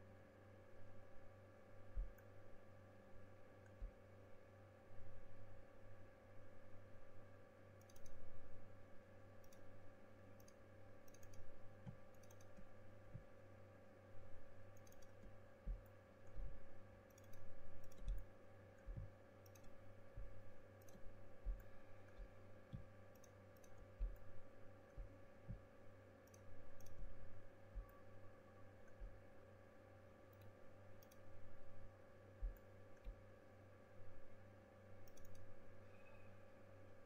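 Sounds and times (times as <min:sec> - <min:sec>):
low electrical hum: 0:00.0 - 0:37.0
computer mouse clicks: 0:02.0 - 0:02.4, 0:07.8 - 0:08.3, 0:09.4 - 0:13.3, 0:14.7 - 0:27.2, 0:30.3 - 0:31.3, 0:32.4 - 0:33.2, 0:35.0 - 0:36.1.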